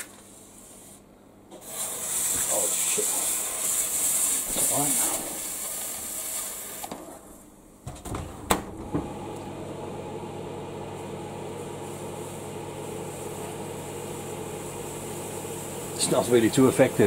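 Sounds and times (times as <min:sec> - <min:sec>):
fan humming: 0:00.0 - 0:17.0
fuse hissing: 0:00.4 - 0:07.2, 0:10.9 - 0:17.0.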